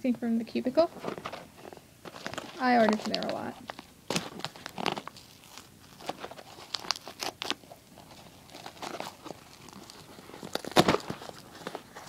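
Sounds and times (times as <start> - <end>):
paper envelope tearing: 2.1 - 12.0
loud paper rip: 4.1 - 12.0.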